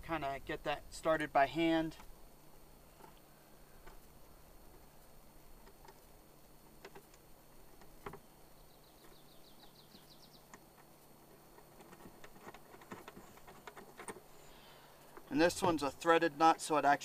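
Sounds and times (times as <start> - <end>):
faint clicks of metal parts: 2.9 - 8.3, 9.0 - 15.9.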